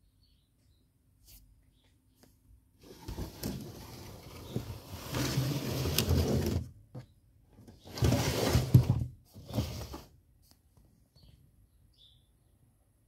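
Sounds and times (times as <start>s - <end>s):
rubbing and scraping handling noise: 2.8s - 10.1s.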